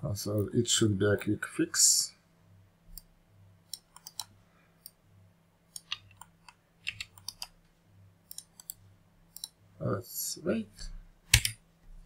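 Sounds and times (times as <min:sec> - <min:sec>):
faint low hum: 0:00.0 - 0:12.0
mouse and keyboard clicks: 0:03.7 - 0:05.0, 0:05.7 - 0:07.6, 0:08.3 - 0:09.6, 0:11.3 - 0:11.6.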